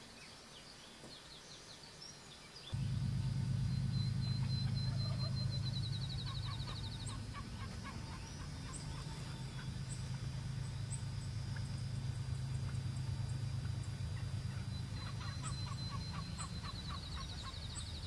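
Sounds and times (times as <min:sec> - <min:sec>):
distant turkey gobbling: 0:02.8 - 0:18.0
high trilling note: 0:02.8 - 0:18.0
loud low rumble: 0:02.8 - 0:18.0.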